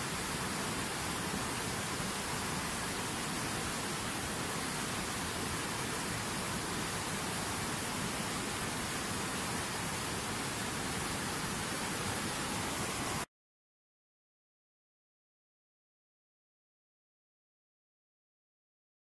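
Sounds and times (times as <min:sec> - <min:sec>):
steady rushing hiss: 0:00.0 - 0:13.3.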